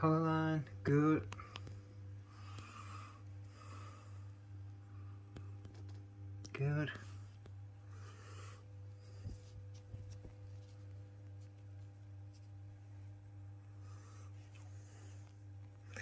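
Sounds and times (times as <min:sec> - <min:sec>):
steady low hum: 0:00.0 - 0:16.0
fabric rustling: 0:09.1 - 0:12.6.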